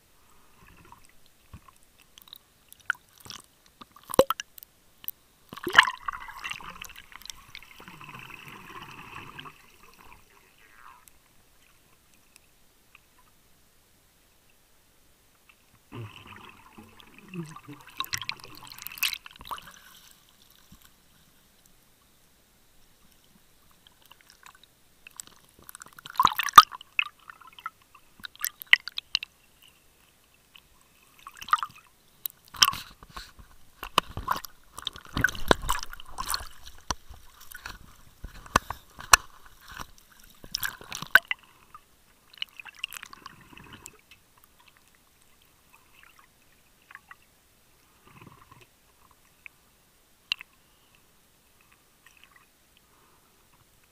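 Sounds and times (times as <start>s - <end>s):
water sloshing against camera case: 32.6s - 41.4s.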